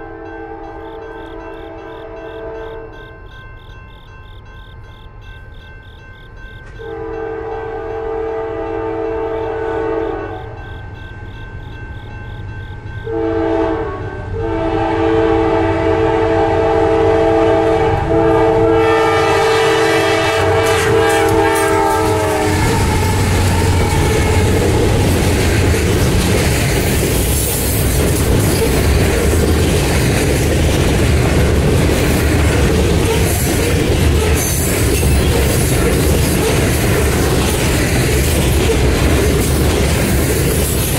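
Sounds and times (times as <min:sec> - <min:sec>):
locomotive horn chord: 0:00.0 - 0:03.0, 0:06.8 - 0:10.6, 0:13.0 - 0:25.2
train rumbling past: 0:00.0 - 0:40.9
wheels clattering over rails: 0:20.6 - 0:40.9.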